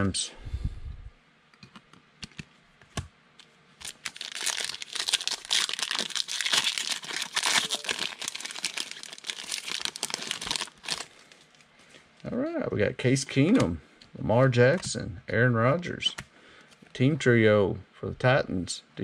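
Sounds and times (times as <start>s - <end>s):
foil wrapper crinkling and tearing: 3.8s - 11.7s.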